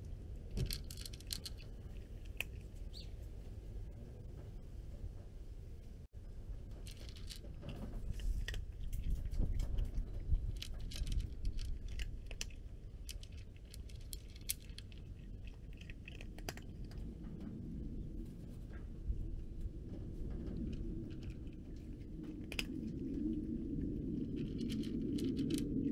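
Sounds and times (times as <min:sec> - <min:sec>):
cat crunching kibble: 0:00.0 - 0:02.9, 0:06.7 - 0:17.3, 0:20.3 - 0:25.9
low steady rumble: 0:00.0 - 0:25.9.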